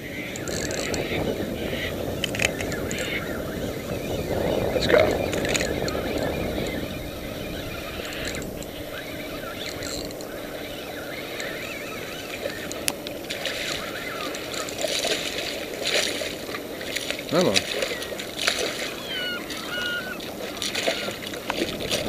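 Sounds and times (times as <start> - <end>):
water at the shoreline: 0.0 - 22.0
wind: 0.0 - 22.0
fish splashing at the surface: 13.2 - 22.0.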